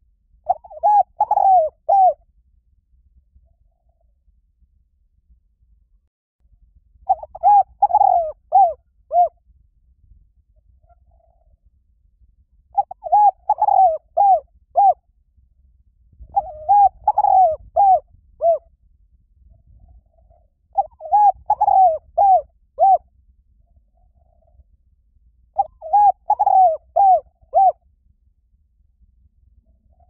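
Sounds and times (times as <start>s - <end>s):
dove cooing: 0.5s - 2.2s, 7.1s - 9.4s, 12.8s - 15.0s, 16.2s - 18.6s, 19.9s - 23.0s, 25.6s - 27.8s.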